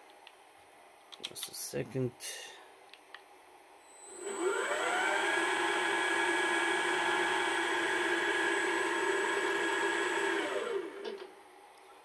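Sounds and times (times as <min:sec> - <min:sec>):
lathe spindle motor whine: 0:03.9 - 0:11.2.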